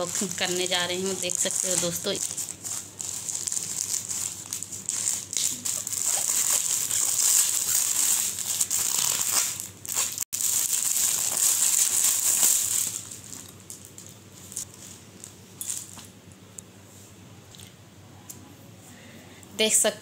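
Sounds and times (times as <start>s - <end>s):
plastic packaging crinkling: 0.0s - 16.1s
scissors cutting plastic: 5.1s - 10.3s.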